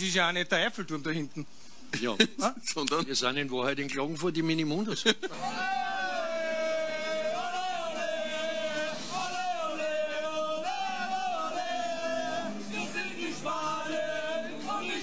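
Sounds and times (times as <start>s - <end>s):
football fans chanting: 5.4s - 15.0s.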